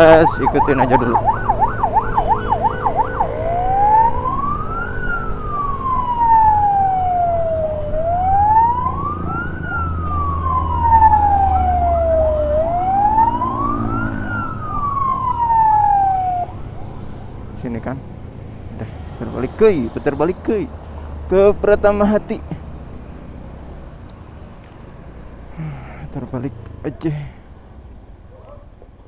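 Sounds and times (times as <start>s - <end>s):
electronic emergency siren: 0.0s - 17.7s
motorcycle low hum: 0.9s - 19.2s.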